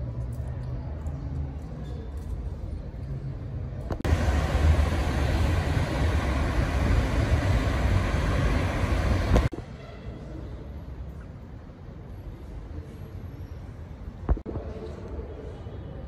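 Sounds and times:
cars driving past: 4.0s - 9.5s.

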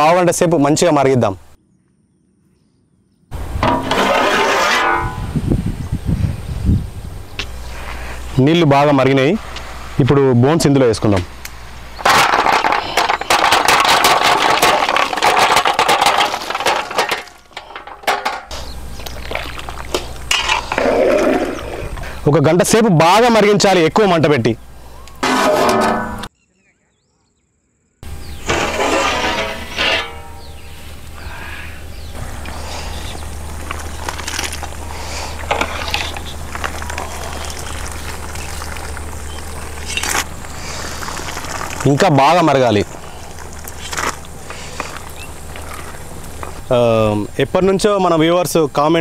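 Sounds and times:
wood fire crackling and popping: 11.4s - 18.0s, 32.4s - 46.6s
bone pieces clattering on metal: 12.0s - 18.5s
pot of soup boiling: 33.2s - 41.9s.

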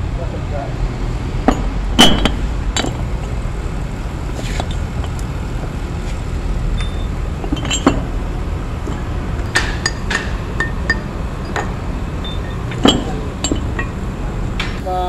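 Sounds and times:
metal chain clinking: 6.8s - 8.2s, 8.8s - 14.1s.

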